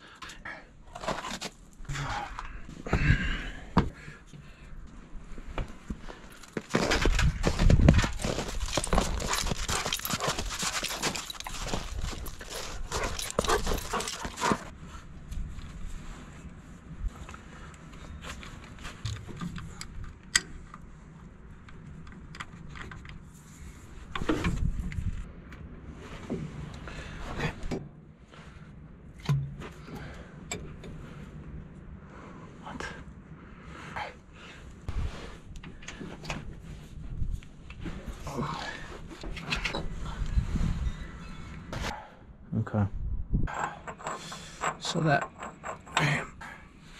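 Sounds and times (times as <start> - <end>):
paws crunching on snow: 6.1 - 14.7
metal parts clinking and scraping: 6.4 - 14.7, 43.5 - 46.3
dog panting: 12.4 - 14.7.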